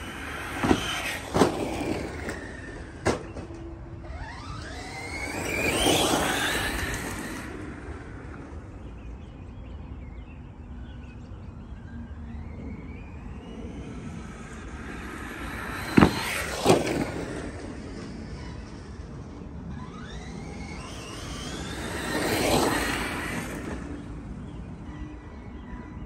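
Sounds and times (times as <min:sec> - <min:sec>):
electric motor whining: 0:00.0 - 0:09.2, 0:11.6 - 0:25.6.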